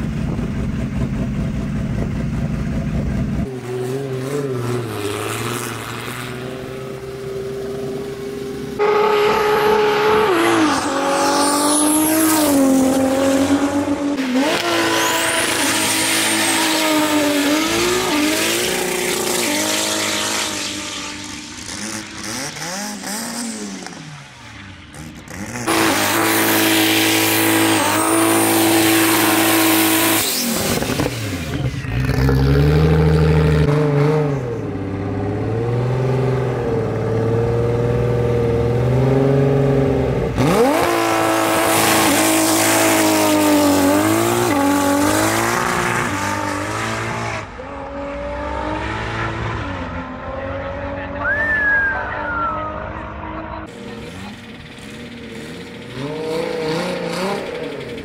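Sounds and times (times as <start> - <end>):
car engine revving hard: 8.8 - 24.0, 25.0 - 51.3, 53.4 - 58.0.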